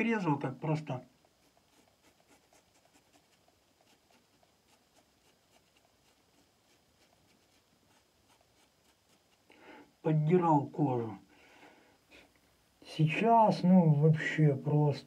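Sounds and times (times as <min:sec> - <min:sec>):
razor cutting stubble: 0:01.4 - 0:09.5.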